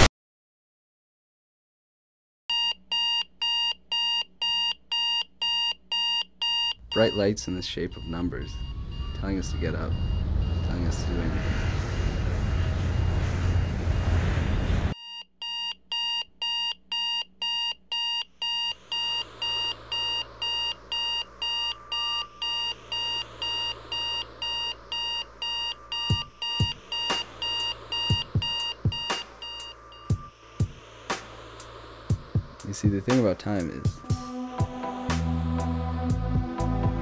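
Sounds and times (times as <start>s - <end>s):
alarm clock beeping: 2.5s - 10.6s, 15.0s - 30.8s
low hum: 6.8s - 15.0s, 18.5s - 37.0s
loud rush of noise: 7.7s - 15.0s, 22.7s - 34.2s.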